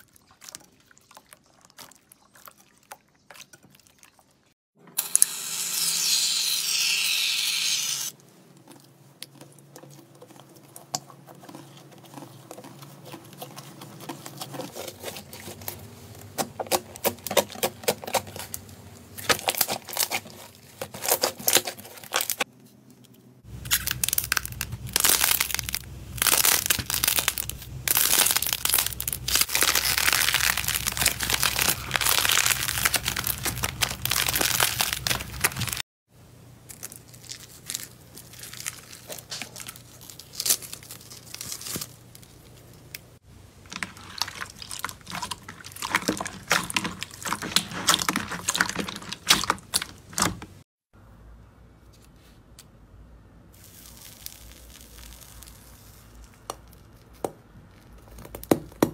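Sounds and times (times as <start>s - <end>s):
slime crackling and popping: 23.6s - 35.8s, 43.7s - 50.4s, 53.6s - 58.9s.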